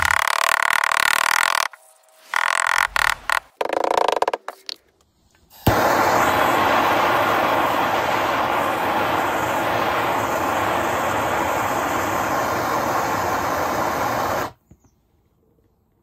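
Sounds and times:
gas torch flame hissing: 5.5s - 14.6s.

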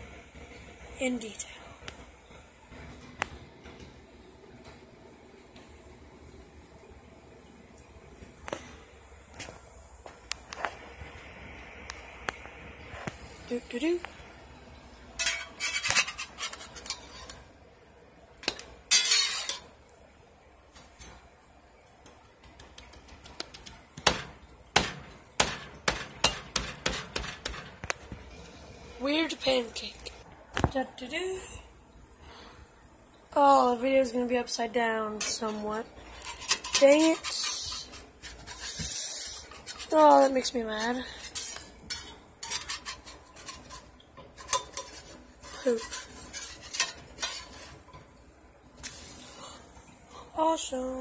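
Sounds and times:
cutlery clinking on skillet: 15.2s - 17.4s, 18.4s - 19.7s, 41.2s - 48.1s.

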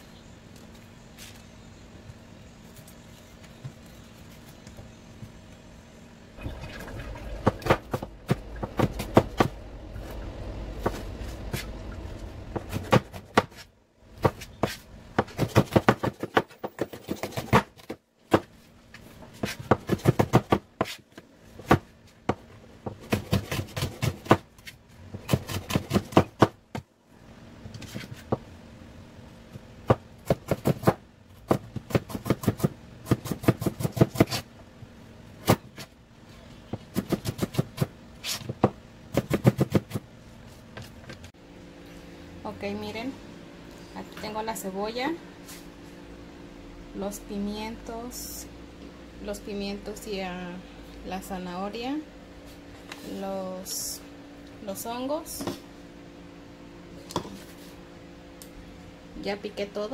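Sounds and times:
knife chopping on cutting mat: 12.5s - 18.5s.

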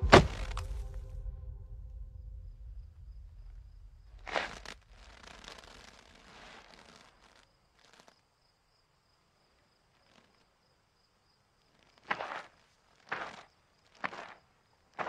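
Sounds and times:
sharp footstep: 0.0s - 6.0s
soft rustling: 2.6s - 8.2s.

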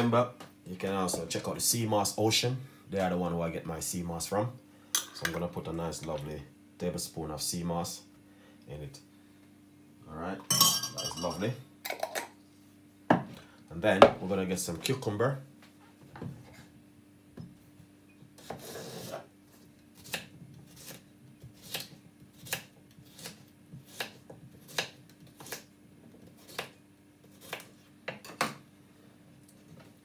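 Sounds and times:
faint steady hum: 0.0s - 30.0s
knife scrape: 18.4s - 21.0s
knife chopping on wooden board: 20.0s - 25.6s, 26.4s - 26.7s.

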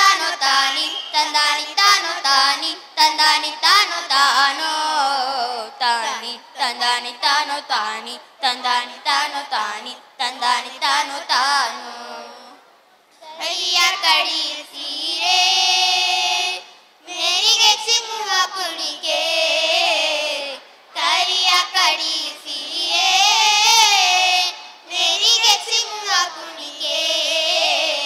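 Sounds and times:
children singing: 13.2s - 28.0s.

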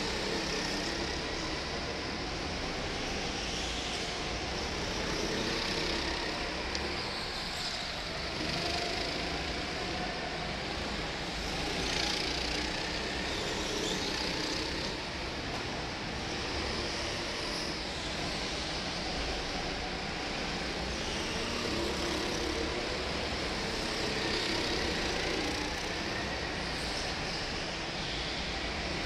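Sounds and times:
go-kart engines droning: 0.0s - 29.0s.

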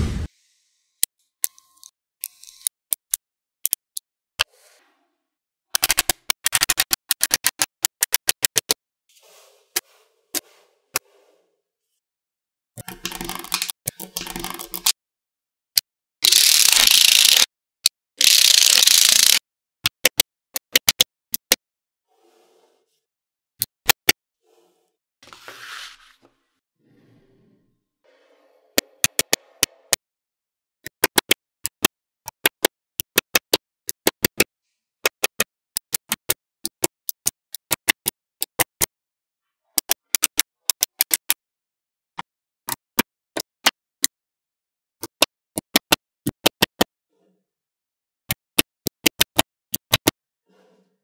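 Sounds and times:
magnetic balls clicking: 12.8s - 15.0s, 16.2s - 17.5s, 18.2s - 21.5s.

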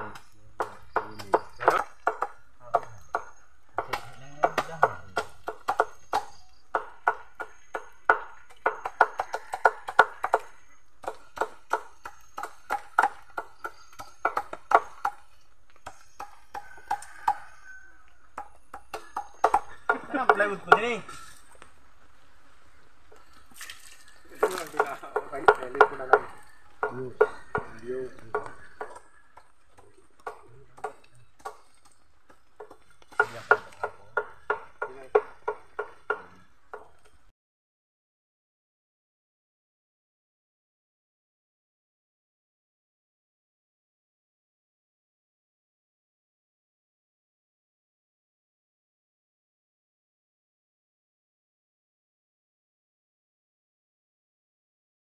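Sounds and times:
knife chopping on wooden board: 0.6s - 15.2s, 30.2s - 37.0s.

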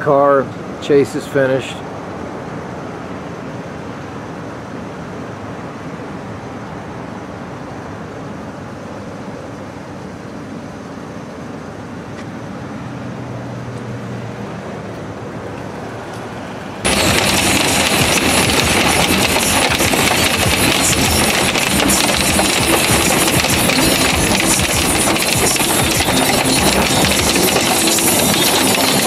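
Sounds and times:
road traffic noise: 0.0s - 29.0s
passing vehicle hum: 12.6s - 22.4s
heavy rain beating on car: 16.9s - 29.0s.

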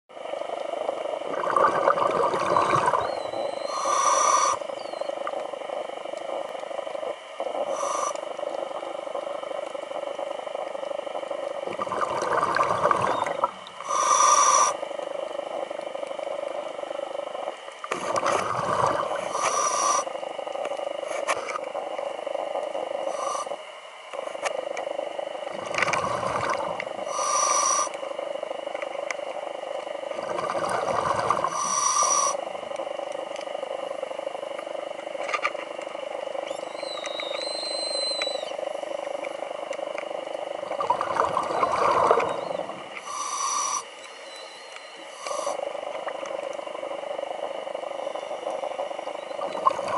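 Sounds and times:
camera hum: 0.2s - 49.9s
scuba regulator breathing bubbles: 0.8s - 15.7s, 16.3s - 28.0s, 30.1s - 33.8s, 38.4s - 49.9s
hissing inhale with whistle: 2.7s - 5.1s, 7.6s - 8.5s, 13.8s - 14.8s, 18.3s - 20.1s, 23.0s - 23.6s, 27.0s - 28.0s, 30.8s - 32.5s, 41.5s - 45.8s
faint rising animal chirp: 2.9s - 5.2s, 36.4s - 38.6s, 43.7s - 45.1s.

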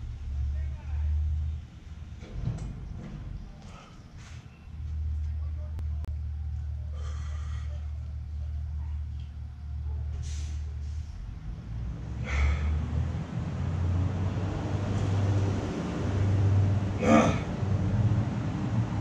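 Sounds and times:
low steady rumble: 0.0s - 19.0s
person breathing hard: 6.9s - 7.9s, 12.2s - 13.0s.

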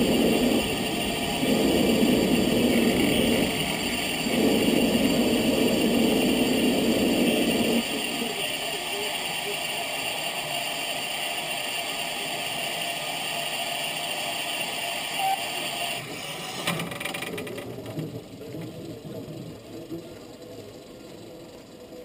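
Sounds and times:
steam hissing: 0.0s - 22.0s.

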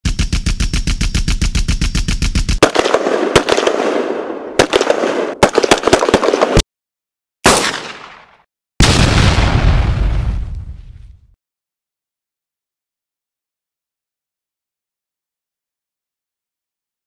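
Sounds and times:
automatic gunfire: 0.1s - 6.6s, 7.4s - 8.3s
crackling volleys of shots: 0.1s - 6.6s, 7.4s - 10.0s
single blast: 7.4s - 11.1s.

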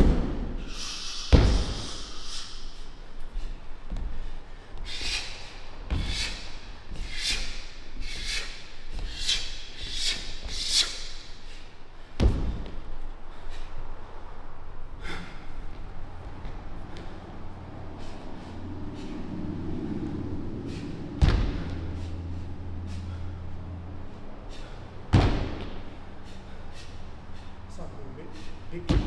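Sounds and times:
sharp swishing hisses: 0.6s - 3.0s
dull thuds: 12.2s - 12.8s, 21.2s - 21.9s, 25.1s - 25.9s.

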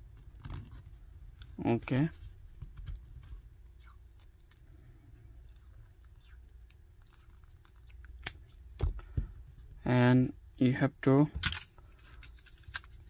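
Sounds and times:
low steady hum: 0.0s - 13.0s
battery cells handled: 11.4s - 13.0s.

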